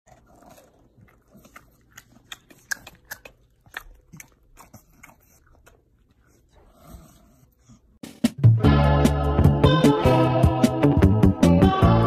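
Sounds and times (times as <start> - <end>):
dog crunching dry cereal: 0.1 - 5.8.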